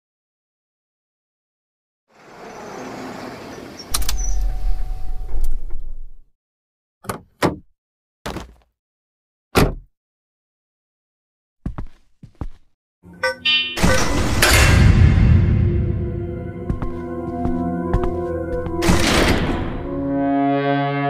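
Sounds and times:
rumbling scraping sound: 0:13.8 - 0:17.2.

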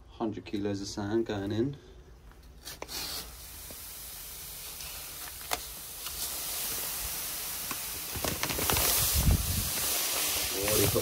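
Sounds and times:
sand pouring into tank: 0:02.6 - 0:11.0.

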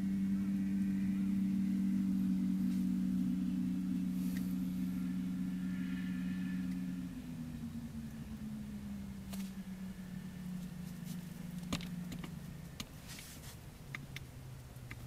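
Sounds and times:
motor humming: 0:00.0 - 0:15.0.

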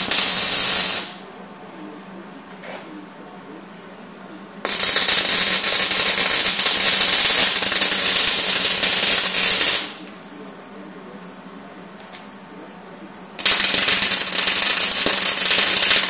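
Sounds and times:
welding arc crackling: 0:00.0 - 0:01.2, 0:04.6 - 0:10.1, 0:13.4 - 0:16.0.

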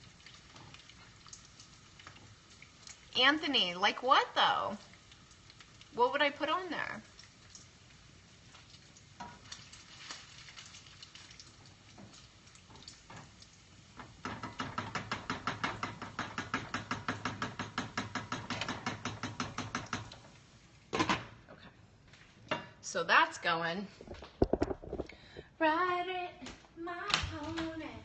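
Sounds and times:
utensil tapping frying pan: 0:11.5 - 0:21.2.

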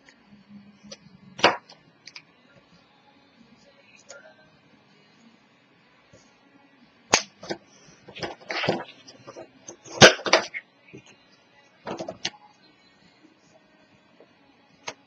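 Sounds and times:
paper rustling: 0:08.1 - 0:10.1.

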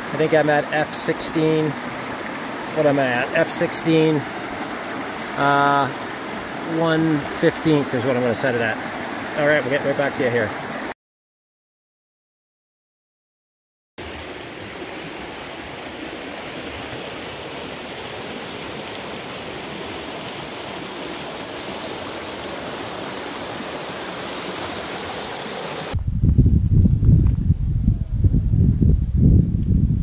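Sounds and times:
water rushing over rocks: 0:00.0 - 0:10.9, 0:14.0 - 0:26.0
low buffeting rumble: 0:26.0 - 0:30.0.

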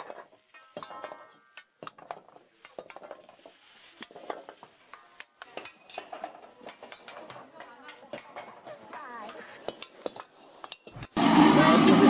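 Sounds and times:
metal utensil clinking on a pan: 0:00.0 - 0:03.4, 0:04.0 - 0:08.8.

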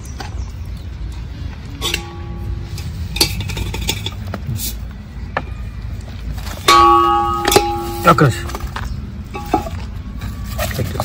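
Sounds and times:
low steady rumble: 0:00.0 - 0:10.6
dishes clinking and knocking: 0:01.8 - 0:04.4.

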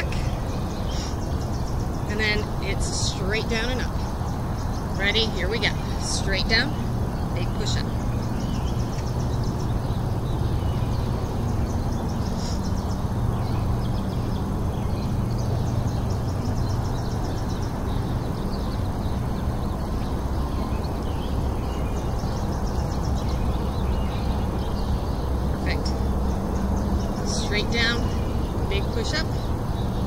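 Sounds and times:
low background rumble: 0:00.0 - 0:30.0.

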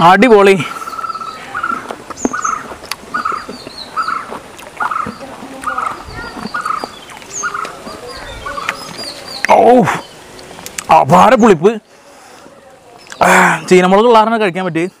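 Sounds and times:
bird chirps: 0:00.7 - 0:10.7.

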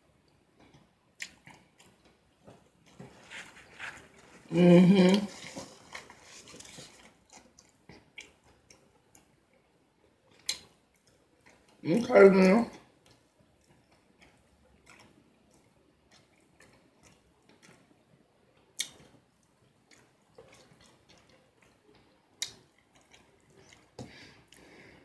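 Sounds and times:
person chewing food: 0:00.2 - 0:11.8, 0:12.8 - 0:25.0
lip smacks: 0:18.8 - 0:19.2, 0:19.9 - 0:24.7.

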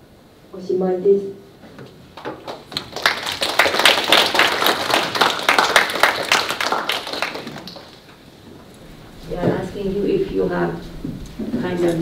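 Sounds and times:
children applauding: 0:02.2 - 0:08.1.

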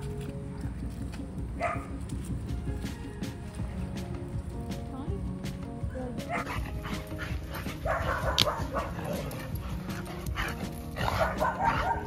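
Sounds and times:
quiet background music: 0:00.0 - 0:12.0
dog barking: 0:01.6 - 0:02.0, 0:06.3 - 0:12.0.

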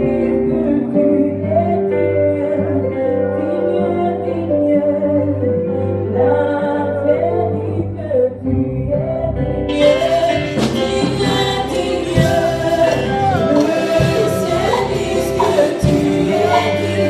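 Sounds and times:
electric guitar: 0:00.0 - 0:17.0
keyboard: 0:00.0 - 0:17.0
woman singing lead: 0:00.0 - 0:17.0
backing singers: 0:09.3 - 0:17.0.

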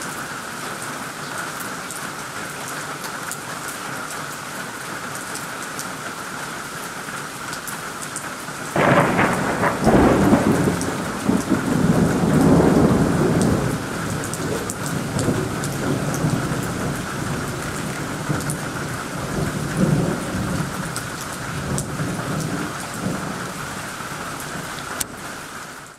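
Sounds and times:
heavy rain on foliage: 0:00.0 - 0:25.9
thunder clap and rumble: 0:08.8 - 0:24.8.

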